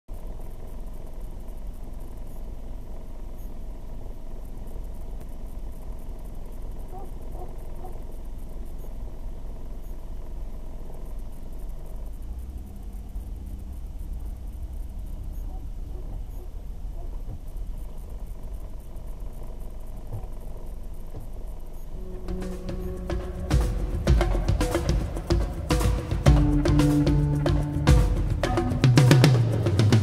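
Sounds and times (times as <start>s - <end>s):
car engine and tyre rumble: 0.1s - 30.0s.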